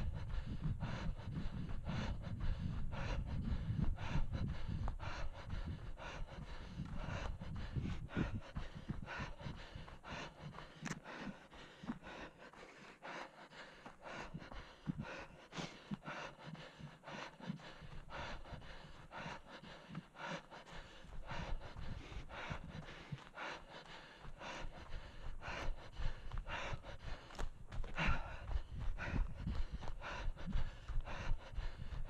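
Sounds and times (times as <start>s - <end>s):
runner panting: 0.0s - 32.0s
footfalls on dry forest ground: 25.8s - 31.4s.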